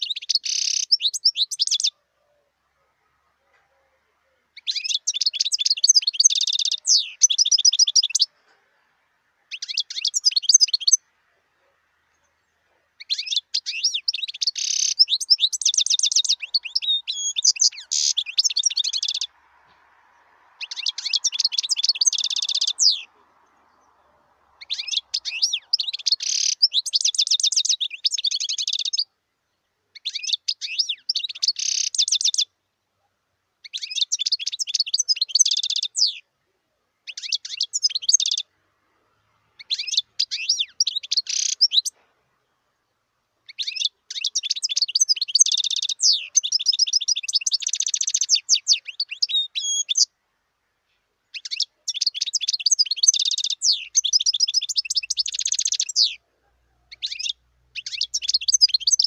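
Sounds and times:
goldfinch twittering and trills: 0.0s - 1.9s, 4.6s - 8.3s, 13.0s - 19.3s, 20.6s - 23.1s, 24.6s - 29.1s, 33.7s - 36.2s, 37.1s - 38.5s, 39.6s - 41.9s, 43.5s - 50.1s, 51.3s - 56.2s, 56.9s - 59.0s.

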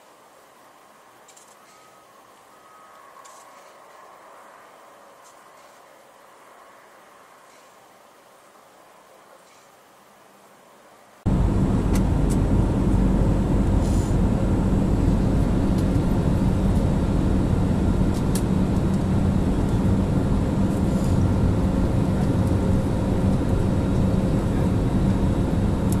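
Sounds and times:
jet airliner cabin noise: 11.2s - 26.0s.

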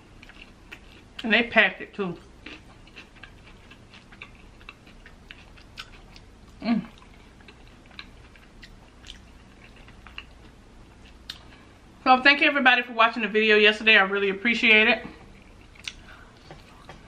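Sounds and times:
chewing and mouth sounds: 0.2s - 1.3s, 2.2s - 11.7s, 15.2s - 17.0s.

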